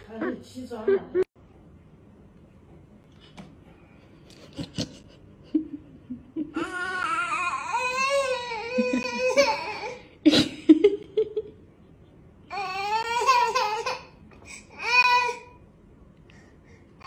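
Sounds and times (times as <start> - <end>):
baby whining and crying: 6.6 - 10.1, 12.5 - 15.6.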